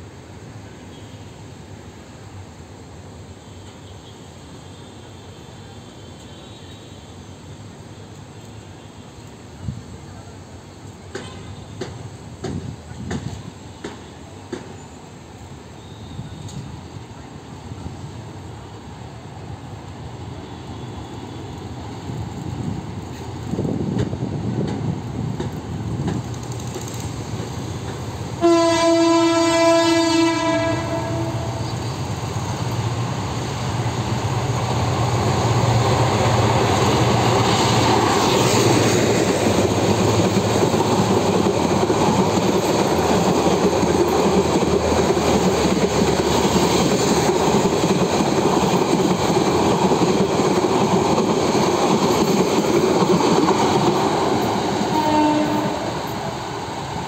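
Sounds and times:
train wheels clattering on rails: 10.8 - 16.9, 21.6 - 57.0
train horn blast: 28.4 - 32.0, 54.8 - 56.2.

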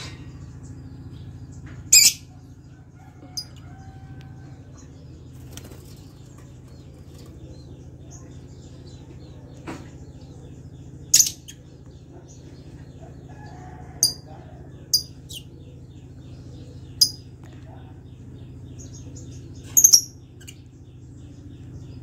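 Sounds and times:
steady low hum: 0.0 - 22.0
lovebirds chirping shrilly: 1.9 - 2.4, 11.1 - 11.7.

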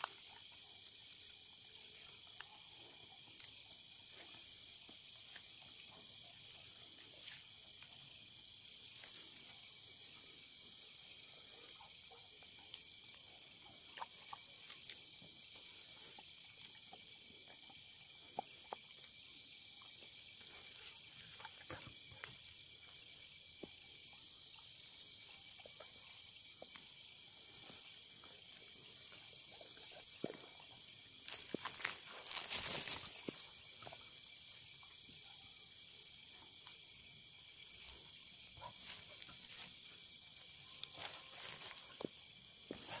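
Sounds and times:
faint insect tones: 0.0 - 43.0
insects trilling: 0.0 - 43.0
dogs chewing grass: 11.5 - 34.6, 36.4 - 43.0.

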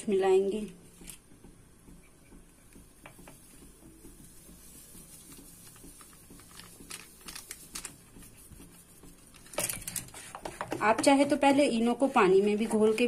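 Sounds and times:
plastic sachet crinkling: 4.6 - 8.1.

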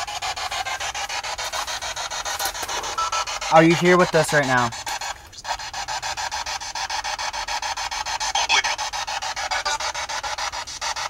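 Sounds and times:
radio static chopped into bursts: 0.0 - 11.0
snatch of radio broadcast: 3.4 - 5.6, 8.3 - 11.0.

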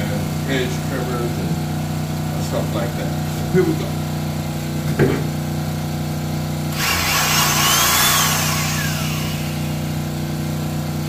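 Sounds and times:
power drill motor whine: 6.7 - 10.4.

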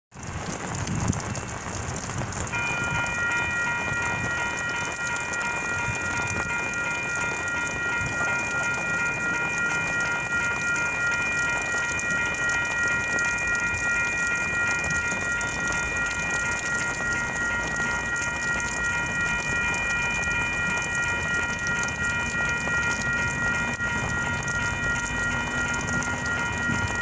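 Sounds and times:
rain hissing on wet pavement: 0.1 - 27.0
railroad crossing bells ringing: 0.4 - 27.0.

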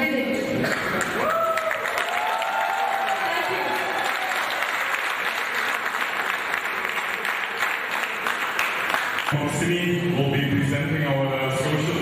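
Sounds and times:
audience applauding: 0.6 - 9.5.

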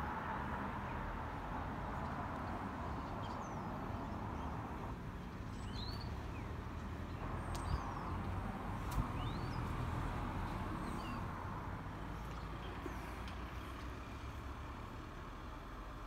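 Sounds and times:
distant traffic hum: 0.0 - 16.0
small birds chirping: 1.9 - 14.3.

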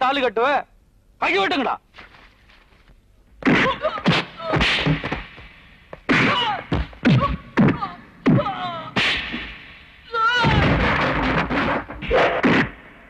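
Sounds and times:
punch and kick thuds: 3.4 - 9.6, 10.4 - 12.8.

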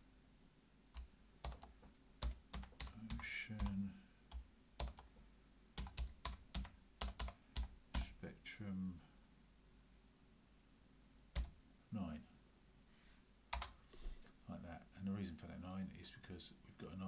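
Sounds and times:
computer keyboard typing: 1.0 - 5.2, 5.8 - 8.2, 11.4 - 11.6, 13.5 - 13.8.

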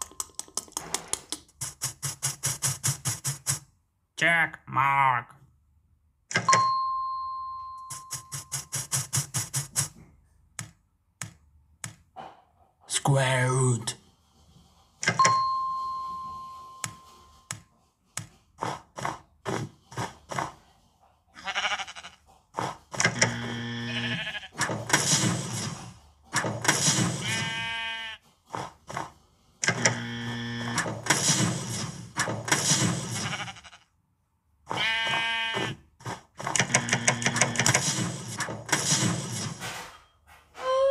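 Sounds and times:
sheep bleating: 21.4 - 22.2, 23.8 - 24.6, 27.2 - 28.2, 33.2 - 33.9, 34.7 - 35.8.

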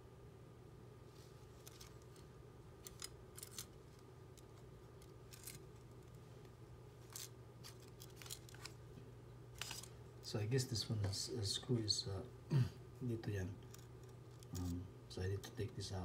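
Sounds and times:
faint hum: 0.0 - 16.0
metal camera cage clicks and scrapes: 1.5 - 6.2, 7.0 - 8.8, 9.5 - 10.0, 13.6 - 14.8.

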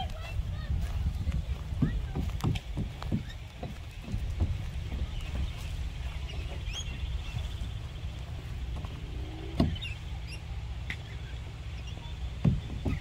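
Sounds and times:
wind rumble on microphone: 0.0 - 13.0
bird chirps: 4.6 - 13.0.

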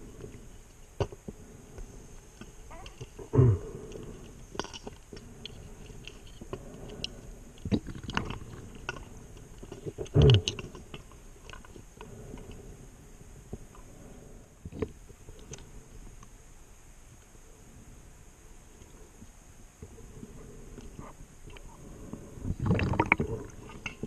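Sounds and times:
faint steady hiss: 0.0 - 24.0.

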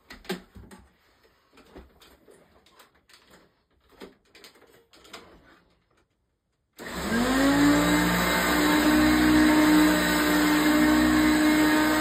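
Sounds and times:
vacuum cleaner motor running: 6.8 - 12.0.

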